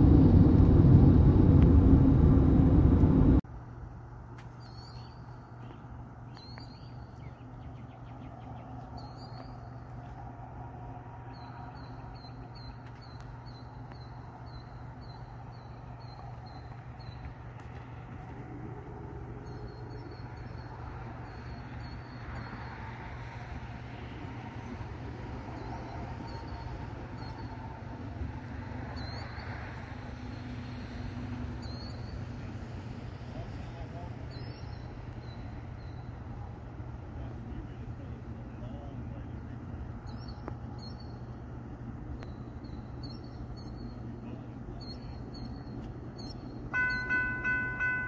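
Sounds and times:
low steady hum: 0:00.0 - 0:28.6
insects droning: 0:03.5 - 0:48.0
bird chirping: 0:04.6 - 0:10.2, 0:31.6 - 0:32.2, 0:34.3 - 0:36.2, 0:42.2 - 0:44.1, 0:44.8 - 0:48.0.

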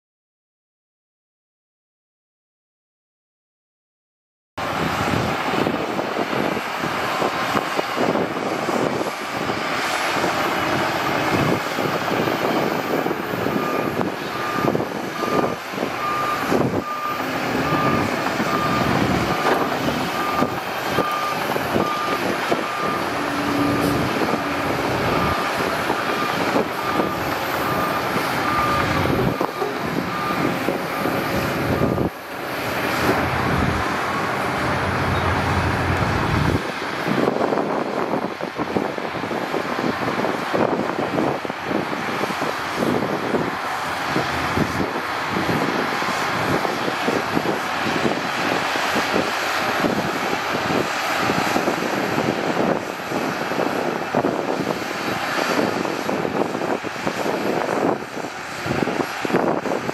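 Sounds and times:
bulldozer engine under load: 0:04.6 - 0:59.9
reversing alarm beeping: 0:10.2 - 0:35.8
steel tracks clanking: 0:17.2 - 0:36.6.

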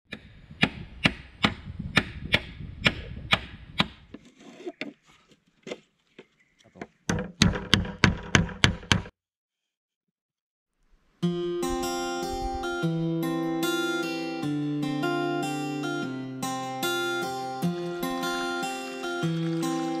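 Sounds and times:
tool striking wood: 0:06.8 - 0:09.2.

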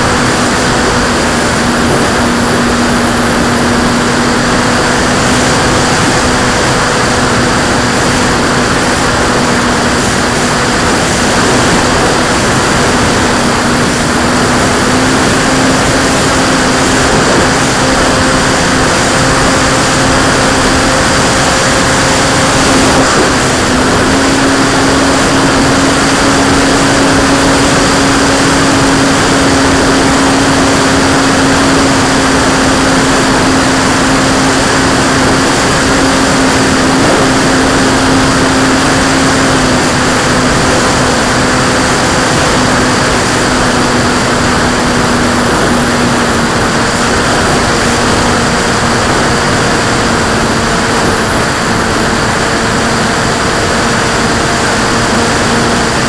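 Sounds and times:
model plane motor and propeller: 0:00.0 - 0:56.0
wind rush: 0:00.0 - 0:56.0.

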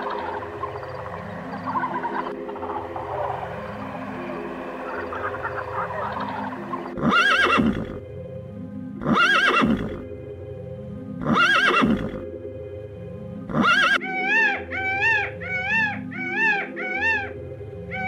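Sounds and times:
peacock calling: 0:00.0 - 0:07.9, 0:13.5 - 0:17.3
background music: 0:00.0 - 0:18.0
pony whinnying: 0:07.0 - 0:08.0, 0:09.0 - 0:10.0, 0:11.2 - 0:12.2, 0:13.5 - 0:17.2.

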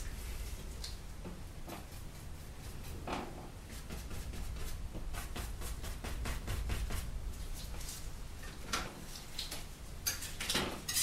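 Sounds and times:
low steady hum: 0:00.0 - 0:11.0
paintbrush scraping and tapping: 0:01.2 - 0:08.0.

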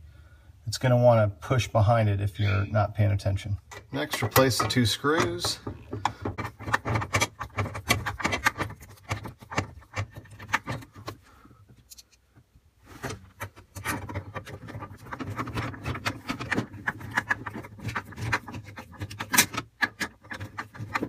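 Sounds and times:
screwdriver clicking and scraping: 0:03.7 - 0:11.2, 0:13.0 - 0:21.0.

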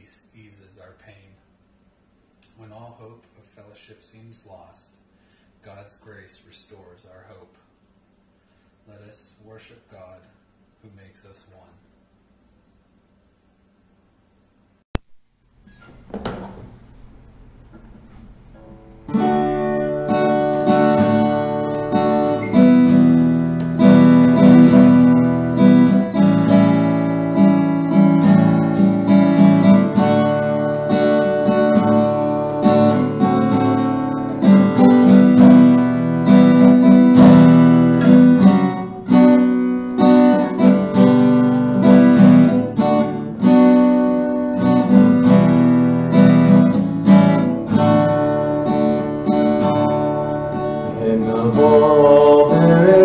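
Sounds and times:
acoustic guitar strumming: 0:18.4 - 0:53.0.

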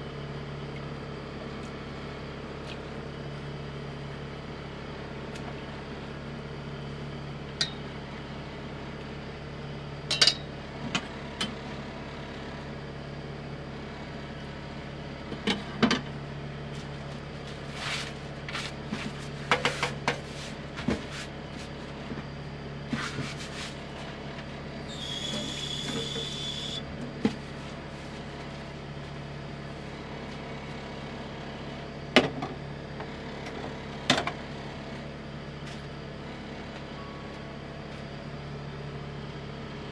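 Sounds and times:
induction hob humming: 0:23.4 - 0:30.8.

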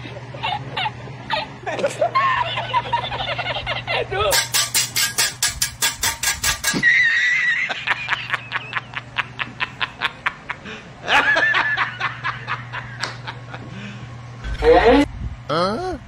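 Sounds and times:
stifled snickering laughter: 0:00.0 - 0:04.3, 0:06.8 - 0:13.9.

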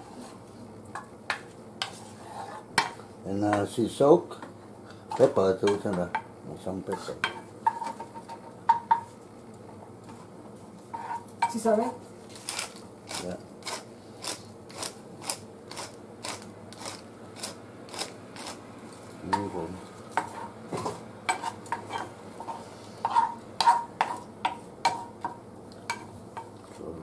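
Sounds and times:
wooden spatula scraping a pan: 0:01.8 - 0:03.0, 0:10.9 - 0:11.3, 0:20.2 - 0:25.1.

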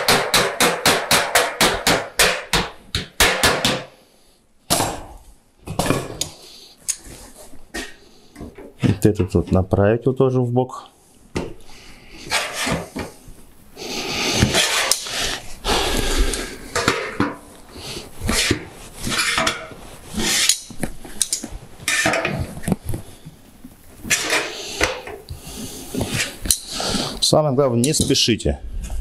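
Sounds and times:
sheet metal clanks and scrapes: 0:12.3 - 0:13.1, 0:14.4 - 0:15.1, 0:16.7 - 0:17.5, 0:18.2 - 0:22.5, 0:24.0 - 0:25.2.

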